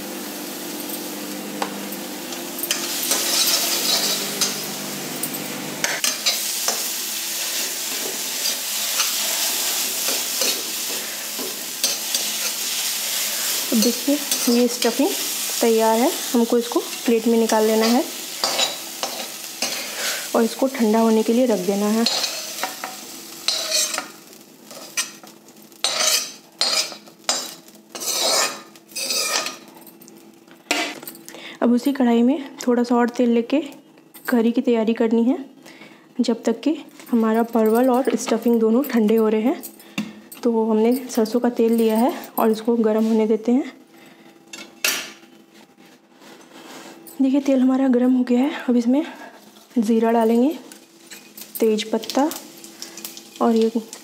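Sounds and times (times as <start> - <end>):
food sizzling in oil: 0.0 - 31.0, 49.2 - 54.0
spoon scraping a metal pan: 2.7 - 4.6, 22.0 - 24.1, 25.8 - 29.6.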